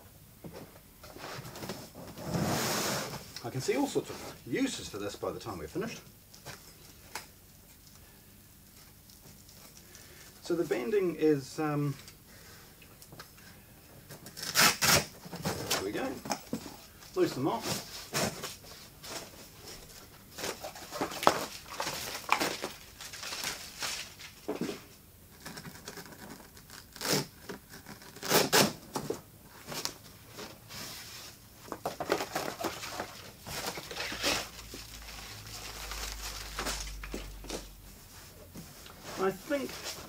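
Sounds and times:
cardboard rustling and scraping: 1.0s - 4.4s, 14.3s - 40.0s.

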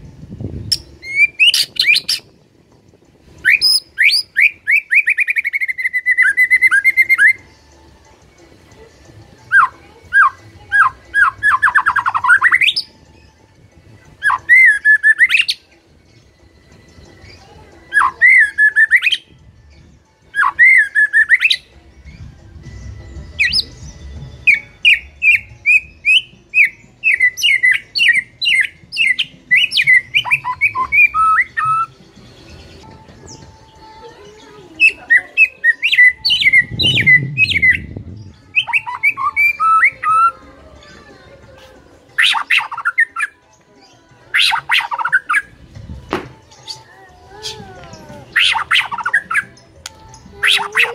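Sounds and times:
bird singing whistled notes: 0.4s - 13.4s, 14.1s - 33.8s, 34.7s - 40.5s, 42.1s - 45.6s, 46.4s - 50.9s
low rumble: 36.6s - 38.5s.

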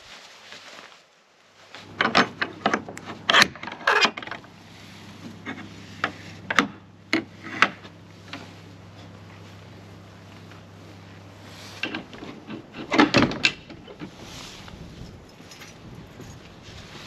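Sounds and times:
gate latch clicking and rattling: 1.9s - 4.4s, 11.9s - 13.8s.

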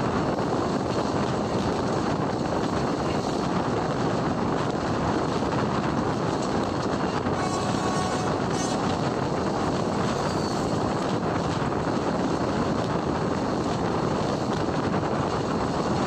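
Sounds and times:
train wheels rolling on rails: 0.0s - 16.0s.

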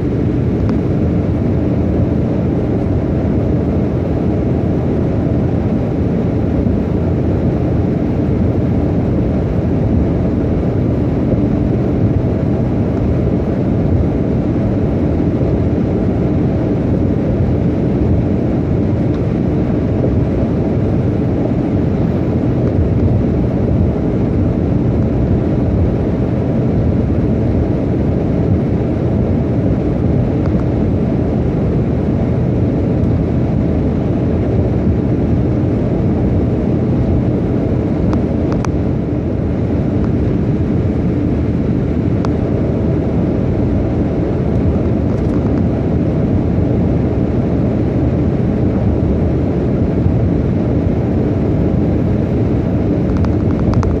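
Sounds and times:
car road and engine rumble: 0.0s - 54.0s.

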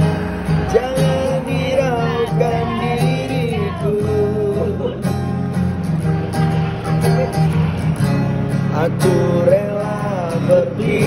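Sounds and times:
acoustic guitar strumming: 0.0s - 11.0s
person singing wordless melody: 0.6s - 5.1s.

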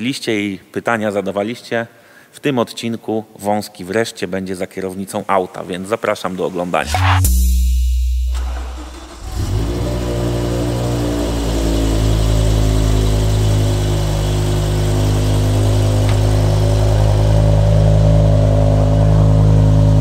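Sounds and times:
car engine idling: 8.3s - 20.0s.

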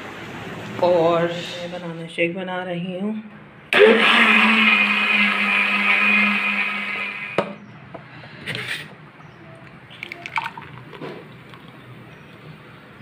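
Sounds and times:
blender running: 3.7s - 7.6s
liquid poured into a glass: 9.9s - 11.8s.

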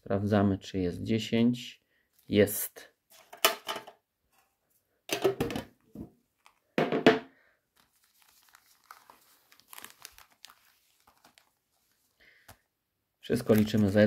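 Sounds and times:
foil packs crinkling: 7.8s - 12.6s, 13.4s - 14.0s.

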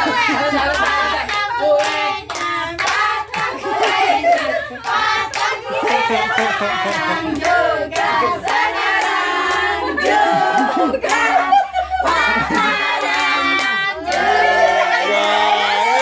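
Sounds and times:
group singing: 0.0s - 16.0s.

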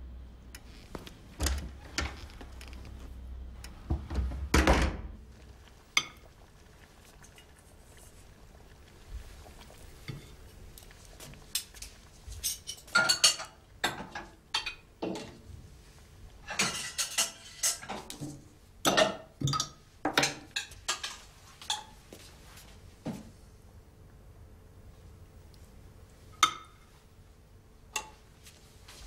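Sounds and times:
pots and pans clattering: 12.4s - 15.4s, 16.4s - 21.9s.

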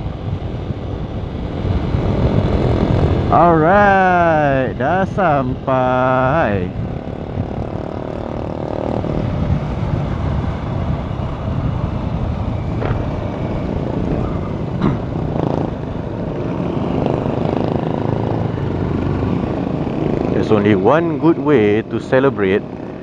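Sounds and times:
motorcycle engine running: 0.0s - 23.0s
wind rushing over microphone: 0.0s - 23.0s.

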